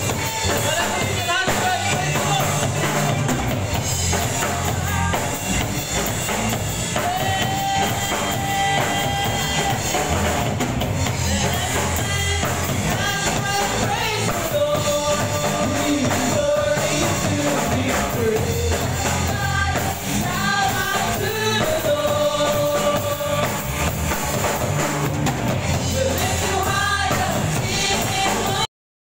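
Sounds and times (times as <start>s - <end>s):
electric guitars: 0.0s - 28.6s
drum kit: 0.0s - 28.7s
singers with long held notes: 4.2s - 24.0s, 25.7s - 28.7s.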